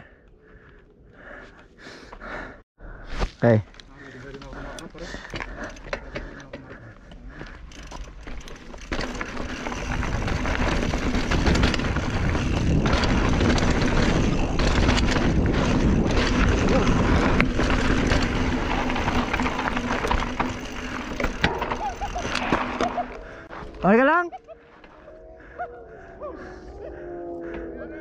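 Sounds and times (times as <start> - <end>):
bike clicks and knocks: 4.3 - 23.6
tyres rolling over dirt and rock: 5.1 - 23.8
wind rushing over camera: 9.0 - 21.1.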